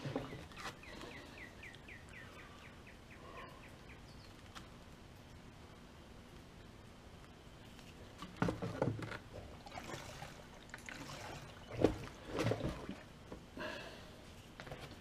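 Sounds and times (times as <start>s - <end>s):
gasoline sloshing and gurgling: 8.4s - 13.2s.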